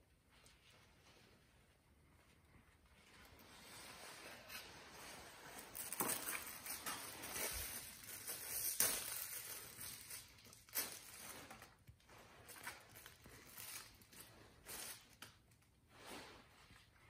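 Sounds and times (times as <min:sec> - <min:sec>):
paper wrapper crinkling: 0:04.5 - 0:15.7.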